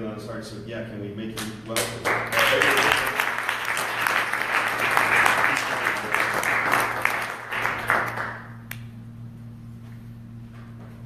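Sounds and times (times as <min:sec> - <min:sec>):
congregation applauding: 0:01.8 - 0:08.6.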